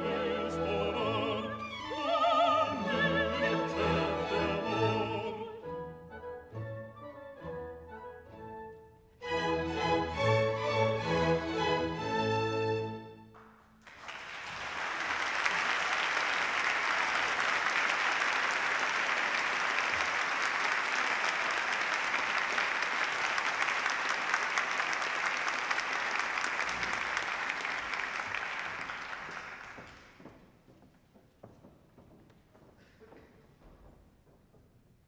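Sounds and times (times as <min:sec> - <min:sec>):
audience applauding: 0:13.3 - 0:30.4.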